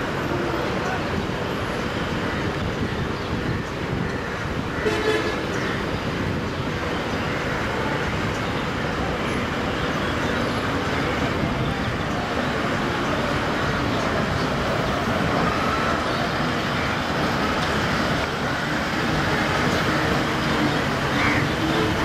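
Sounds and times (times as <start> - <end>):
traffic engines din: 0.0 - 22.0
car horn toot: 4.8 - 5.4.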